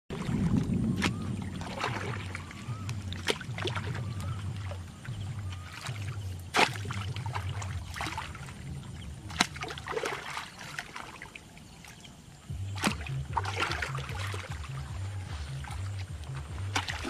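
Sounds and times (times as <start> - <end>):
water splashing and sloshing: 0.1 - 17.0
hoe chopping into wet mud: 6.5 - 7.5, 12.8 - 14.3.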